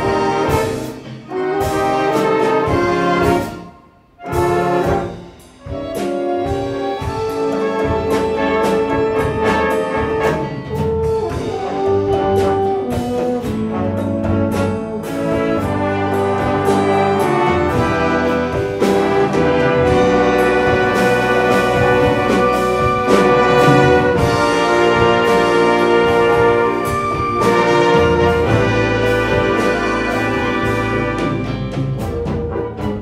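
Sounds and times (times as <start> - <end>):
orchestra with brass chords: 0.0 - 33.0
percussion strokes: 4.2 - 30.2.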